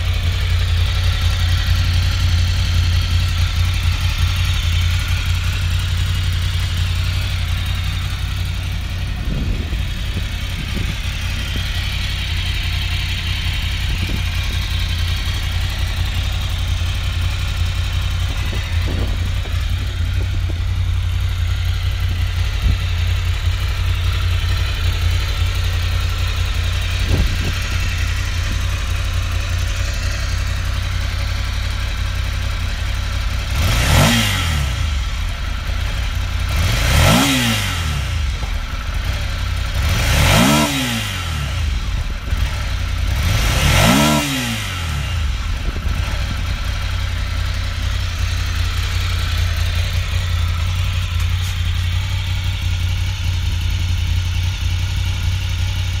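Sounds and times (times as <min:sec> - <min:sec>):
motorcycle engine idling: 0:00.0 - 0:56.0
motorcycle throttle blips: 0:00.0 - 0:56.0.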